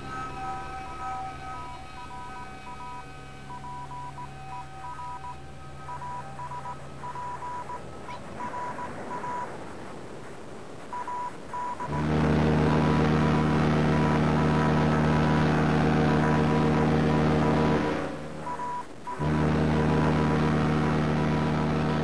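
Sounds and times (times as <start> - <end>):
loud low drone: 0.0 - 7.1, 11.9 - 18.6, 19.2 - 22.0
electronic beeps: 0.0 - 9.6, 10.9 - 11.9, 17.8 - 19.2
steady humming tones: 0.0 - 22.0.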